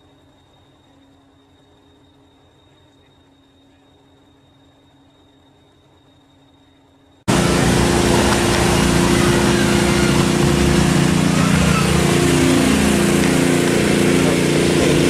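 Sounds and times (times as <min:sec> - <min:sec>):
engine running steadily: 0:07.3 - 0:15.0.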